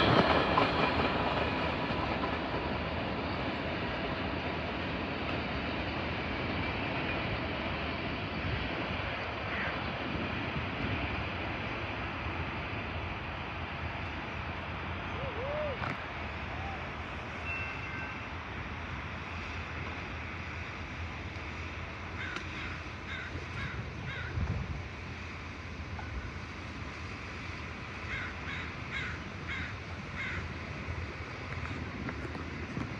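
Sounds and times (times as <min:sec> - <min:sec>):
crow cawing: 0:09.5 - 0:09.7, 0:22.2 - 0:24.4, 0:28.1 - 0:30.5.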